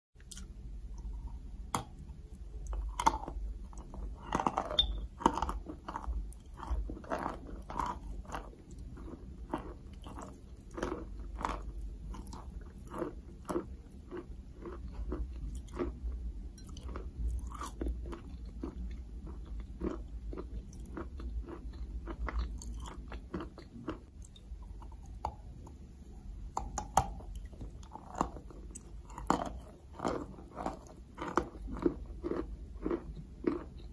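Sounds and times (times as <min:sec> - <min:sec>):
low hum: 0:00.2 - 0:07.0
chalk crunching being chewed: 0:02.6 - 0:16.0, 0:26.8 - 0:33.9.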